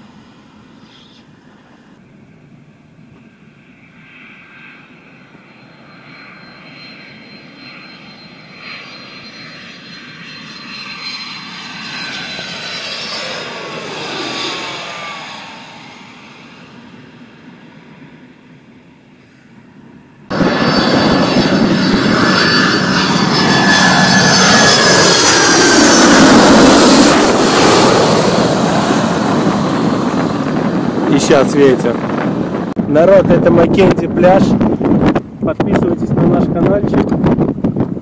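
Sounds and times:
jet airliner passing overhead: 0.0s - 38.0s.

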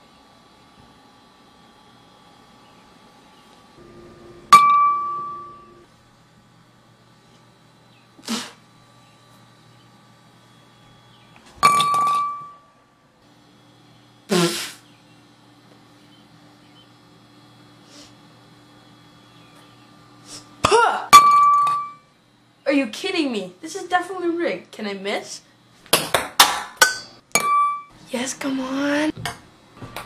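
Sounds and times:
ball clinking against cups: 11.6s - 12.6s.

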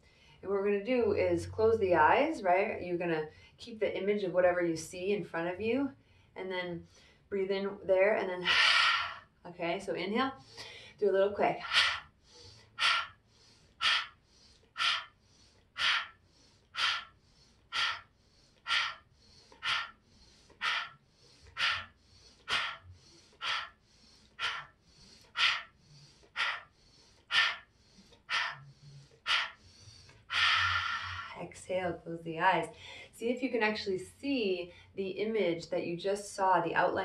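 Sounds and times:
woman breathing forcefully: 0.0s - 0.4s, 8.4s - 9.4s, 10.2s - 31.5s, 32.7s - 33.1s.

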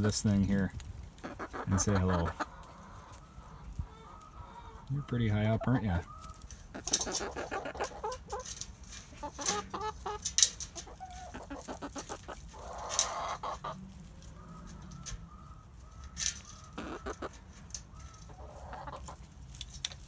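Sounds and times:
hens clucking: 0.0s - 19.4s
hen call: 1.4s - 8.4s.

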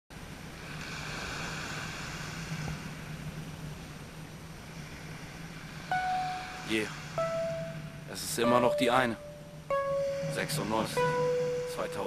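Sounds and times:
waves on a pebble beach: 0.4s - 3.2s
low steady hum: 5.9s - 12.0s.

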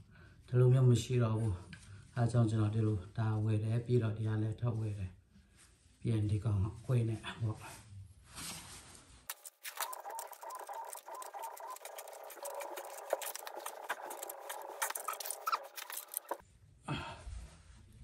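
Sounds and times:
creaking squeaks: 9.3s - 16.4s.

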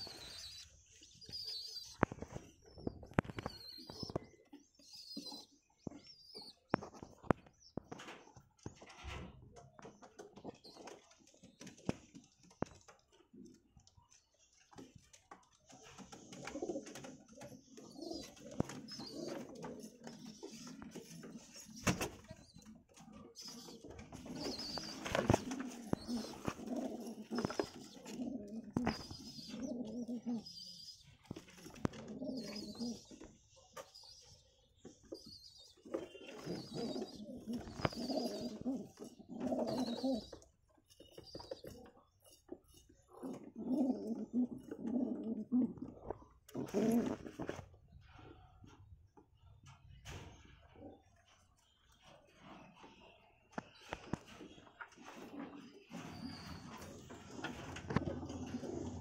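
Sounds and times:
pigeons cooing: 15.9s - 34.3s, 35.1s - 47.7s, 53.6s - 59.0s.

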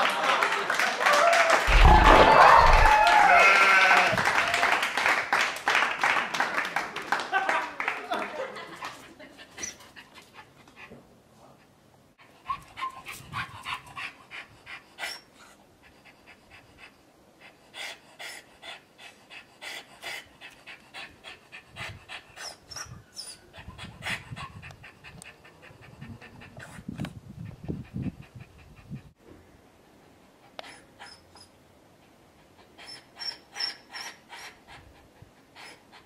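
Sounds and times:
dog panting: 9.2s - 29.2s, 30.0s - 36.0s.

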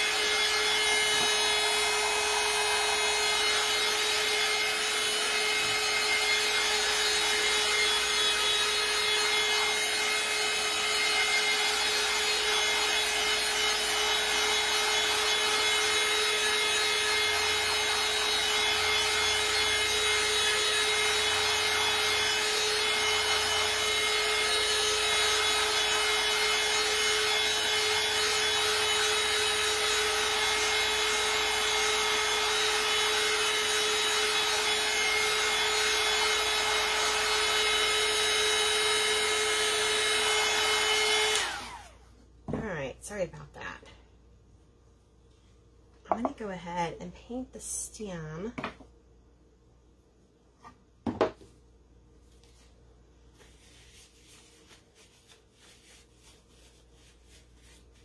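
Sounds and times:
tool rubbing on wood: 0.0s - 9.8s, 53.4s - 58.0s
electric tool motor whine: 0.0s - 42.0s.

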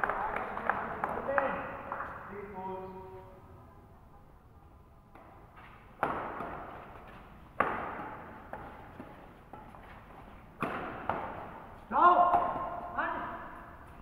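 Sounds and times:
badminton racket hitting shuttlecock: 5.1s - 13.0s.

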